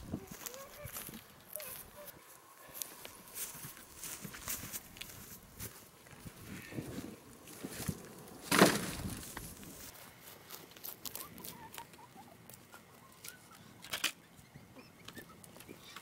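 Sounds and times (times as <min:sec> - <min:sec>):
wooden boards clattering onto pile: 0:08.4 - 0:09.2.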